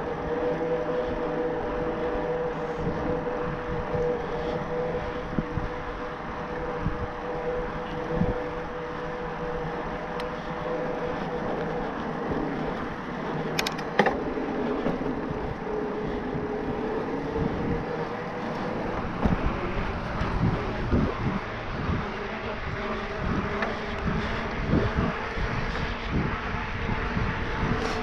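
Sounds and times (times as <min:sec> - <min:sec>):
mid-pitched whine: 0:00.0 - 0:28.0
wind and rolling noise: 0:00.0 - 0:28.0.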